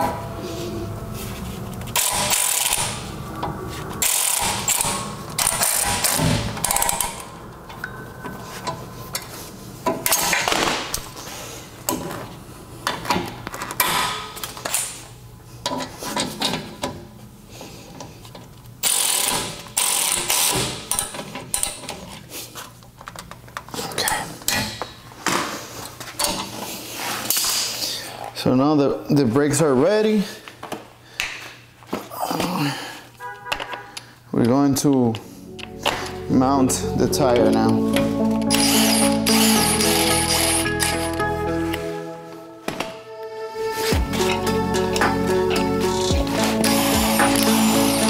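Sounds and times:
hand ratchet clicking: 18.8s - 21.9s.

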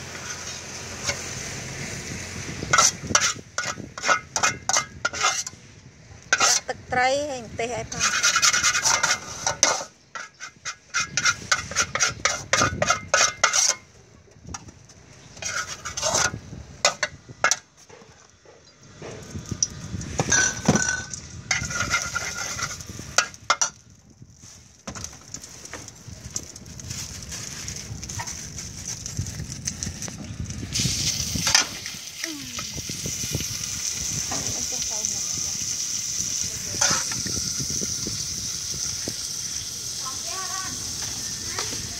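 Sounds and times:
metal spatula scraping a wok: 0.0s - 1.6s, 2.6s - 5.7s, 6.3s - 6.8s, 7.9s - 13.9s, 15.2s - 17.6s, 20.2s - 23.8s, 36.4s - 38.0s
meat sizzling in a wok: 0.0s - 5.5s, 29.9s - 41.9s.

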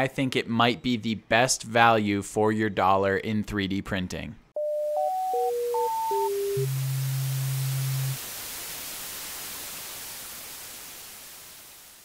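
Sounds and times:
low steady tone: 4.6s - 8.2s
electronic static hiss: 5.6s - 12.0s.

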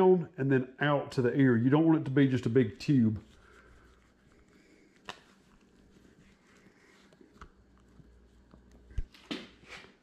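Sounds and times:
fingers rubbing skin: 2.4s - 8.9s.

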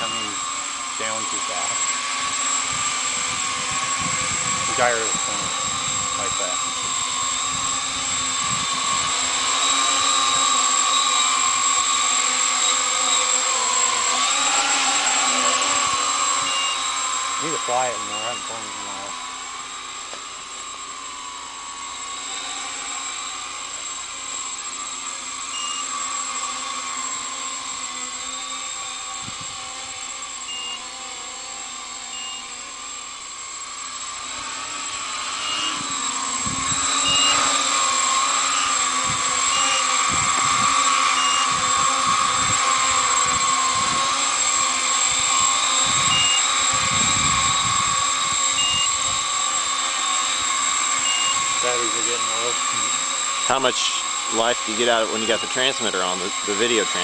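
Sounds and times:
quadcopter motors whining: 0.0s - 57.0s
wind buffeting microphone: 2.6s - 9.2s, 29.2s - 29.7s, 35.8s - 37.3s, 39.0s - 40.8s, 41.5s - 44.2s, 45.1s - 49.3s.

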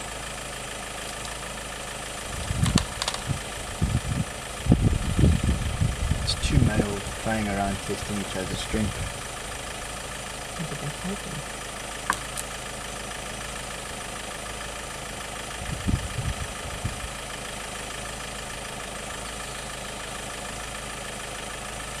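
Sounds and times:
vehicle engine idling: 0.0s - 22.0s.

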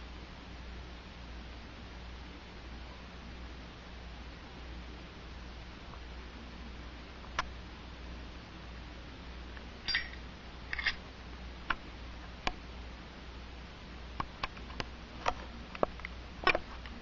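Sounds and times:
steady low hum: 0.0s - 17.0s
lighter lid metallic clinks: 9.9s - 11.0s.

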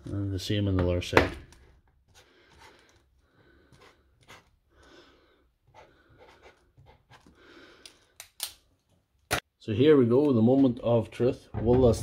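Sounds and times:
marker scratching on plastic: 3.7s - 4.6s, 5.7s - 7.3s.

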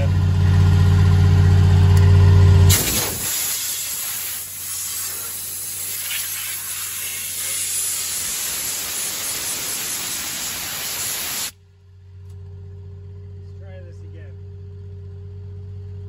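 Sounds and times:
faint engine idling hum: 0.0s - 6.0s, 11.5s - 16.0s
hydraulic oil hissing: 2.7s - 11.5s.

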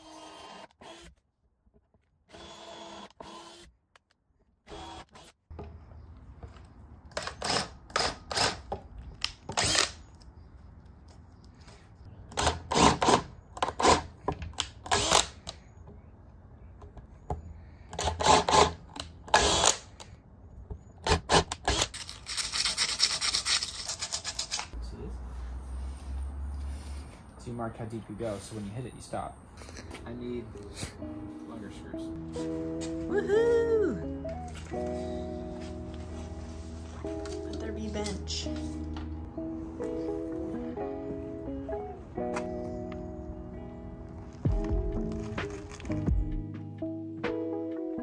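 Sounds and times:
power drill boring into wood: 0.0s - 1.1s, 2.3s - 3.7s, 4.7s - 5.3s, 9.5s - 10.0s, 18.0s - 19.8s.

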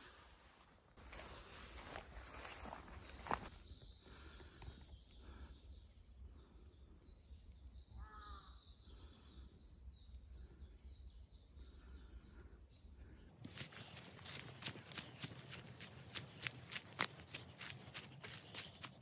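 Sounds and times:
crow cawing: 8.0s - 8.5s.

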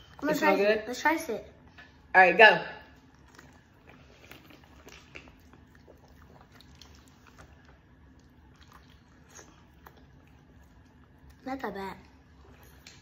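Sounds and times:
low room hum: 0.0s - 13.0s
sipping and swallowing: 3.0s - 11.3s.

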